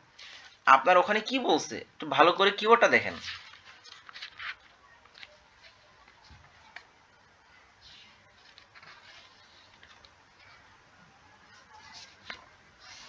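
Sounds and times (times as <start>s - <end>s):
faint rustles: 3.2s - 13.0s.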